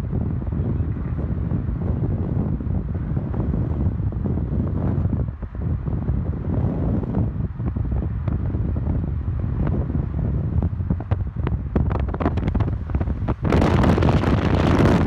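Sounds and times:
car road rumble: 0:00.0 - 0:15.0
wind buffeting microphone: 0:00.0 - 0:15.0.

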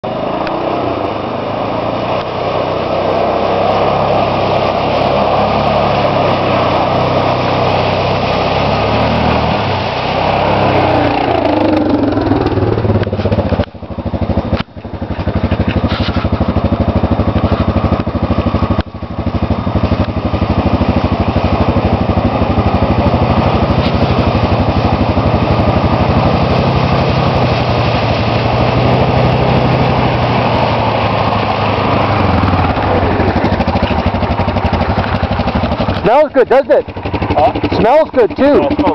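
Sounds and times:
atv engines revving: 0:00.0 - 0:38.9.

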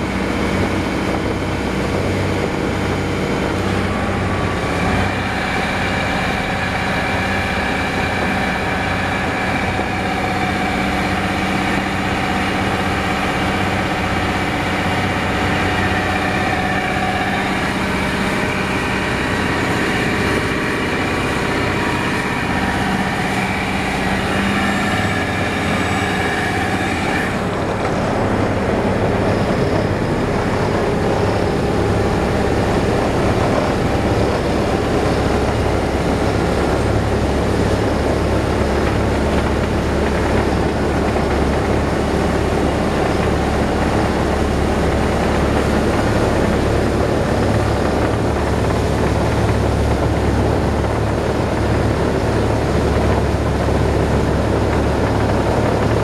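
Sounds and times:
boat diesel engine running: 0:00.0 - 0:56.0
water rushing along hull: 0:00.0 - 0:56.0.

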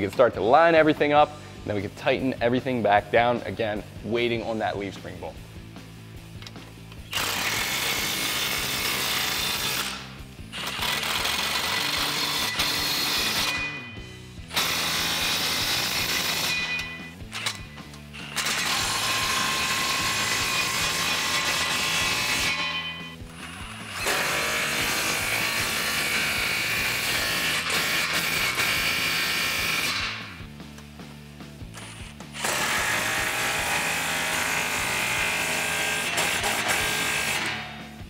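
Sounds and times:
cordless power tool spinning: 0:07.1 - 0:13.6, 0:14.5 - 0:30.4, 0:31.7 - 0:37.8.

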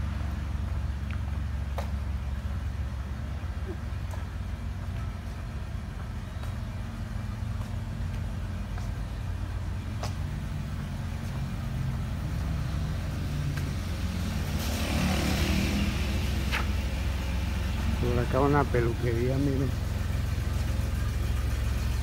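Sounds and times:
vehicle engine rumbling: 0:00.0 - 0:22.0
rushing hiss: 0:14.0 - 0:17.9.

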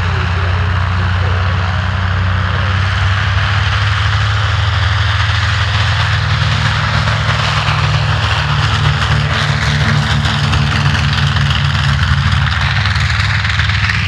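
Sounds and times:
propeller aircraft engines droning: 0:00.0 - 0:14.0.

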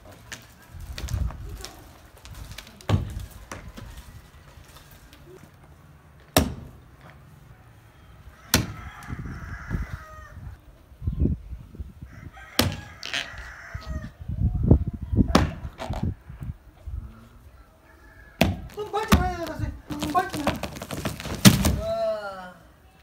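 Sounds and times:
axe chopping wood: 0:06.3 - 0:06.7, 0:08.5 - 0:08.8, 0:18.4 - 0:21.9
rooster crowing: 0:07.9 - 0:10.6, 0:12.1 - 0:14.2, 0:17.6 - 0:18.7
digging thuds: 0:18.4 - 0:22.0.

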